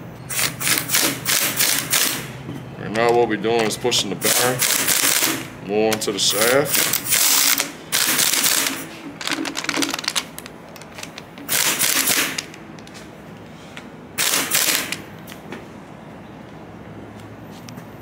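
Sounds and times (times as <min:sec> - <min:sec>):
impact wrench hammering: 0:11.4 - 0:12.6.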